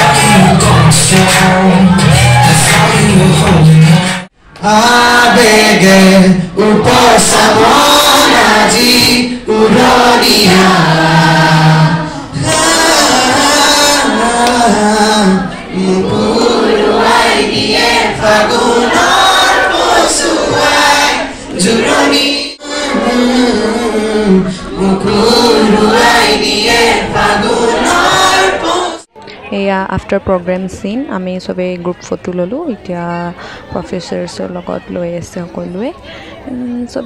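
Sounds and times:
man singing into a microphone: 0:00.0 - 0:16.6.

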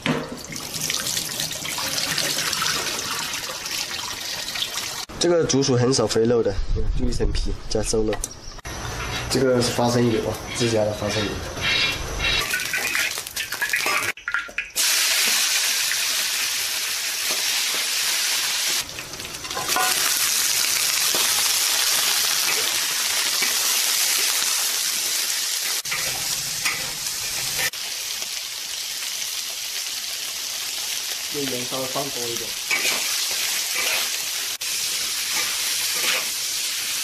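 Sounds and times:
meat sizzling in hot oil: 0:00.5 - 0:05.1, 0:11.6 - 0:14.2, 0:14.8 - 0:37.0
metal spatula stir-frying: 0:08.8 - 0:14.2, 0:15.2 - 0:28.5, 0:29.3 - 0:37.0.

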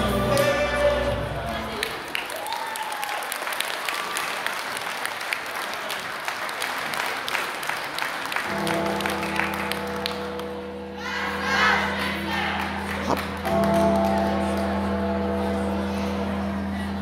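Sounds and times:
music with long held chords: 0:00.0 - 0:01.7, 0:08.5 - 0:17.0
audience applauding: 0:01.4 - 0:10.6, 0:12.6 - 0:14.9.

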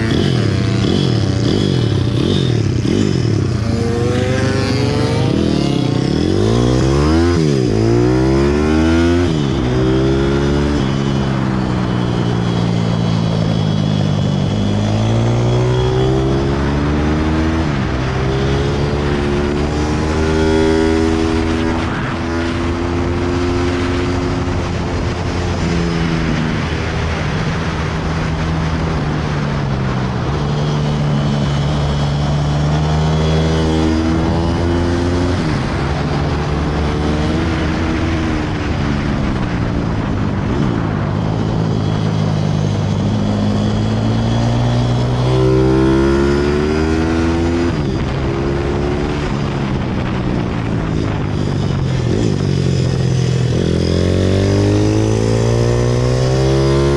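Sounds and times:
pit bike engine revving: 0:00.0 - 0:26.7, 0:42.6 - 0:56.9
wind noise: 0:00.0 - 0:56.9.

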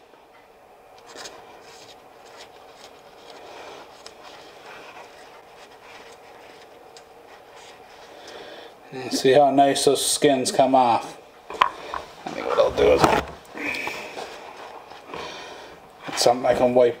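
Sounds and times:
paper rustling: 0:01.0 - 0:08.4, 0:12.2 - 0:13.5.

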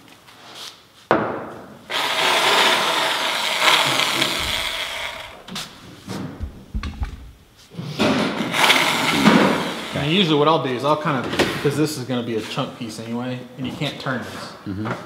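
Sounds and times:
electric shear motor running: 0:01.9 - 0:05.8, 0:08.5 - 0:10.2
short knocks: 0:04.2 - 0:07.4.

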